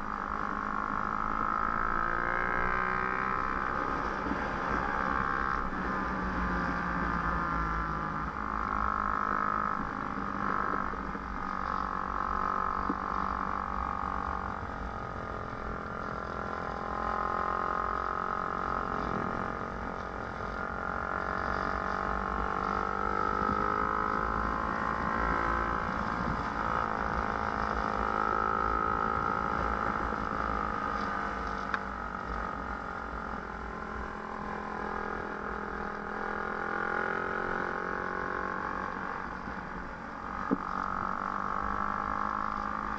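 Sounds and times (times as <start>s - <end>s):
small motorbike engine running: 0.0s - 42.9s
wind rumble on microphone: 21.6s - 34.3s.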